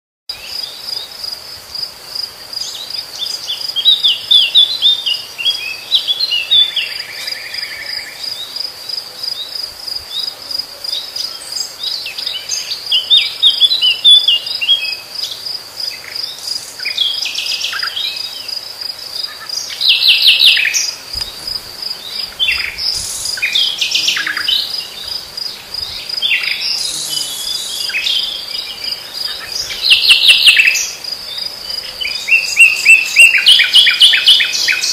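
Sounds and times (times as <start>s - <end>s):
crickets chirping: 0.3s - 34.9s
nightingale singing: 2.6s - 34.9s.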